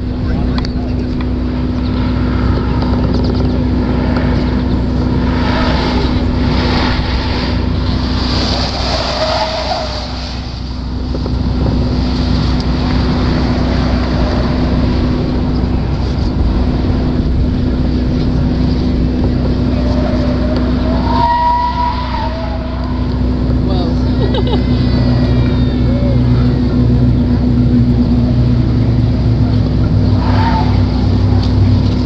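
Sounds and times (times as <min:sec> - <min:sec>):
steady low hum: 0:00.0 - 0:32.0
tyre and road noise: 0:00.0 - 0:32.0.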